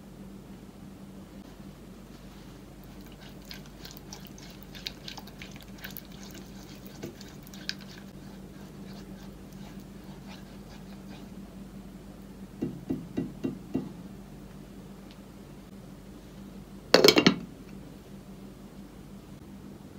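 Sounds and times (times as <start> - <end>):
steady low hum: 0.0 - 19.9
spatula stirring sticky batter: 2.2 - 11.6.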